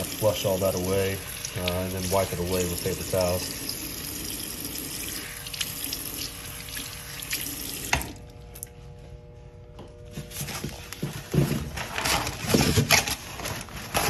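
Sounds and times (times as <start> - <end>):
water running into sink: 0.0 - 8.2.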